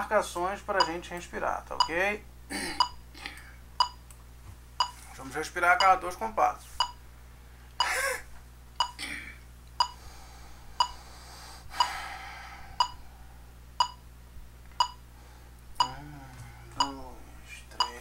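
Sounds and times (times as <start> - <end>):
electronic metronome clicking: 0.8 - 1.0, 1.8 - 2.0, 2.8 - 3.0, 3.8 - 4.2, 5.8 - 6.0, 8.8 - 9.0, 13.8 - 14.0, 14.8 - 15.0, 17.8 - 18.0
person breathing: 9.8 - 13.5, 15.1 - 16.8.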